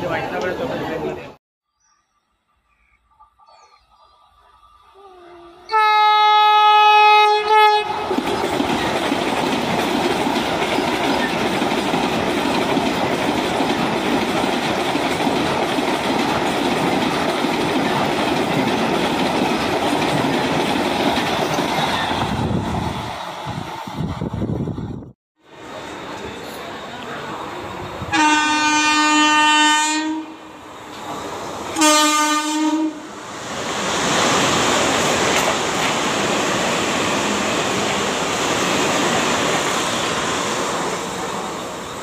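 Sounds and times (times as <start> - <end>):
train horn blast: 5.2 - 8.1, 28.1 - 30.5, 31.8 - 33.1
train rushing past: 5.6 - 42.0.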